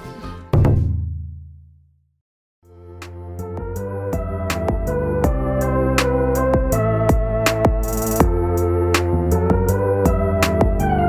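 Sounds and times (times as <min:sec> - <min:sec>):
held chords: 0:02.7 - 0:11.0
light regular drum beat: 0:06.6 - 0:09.1.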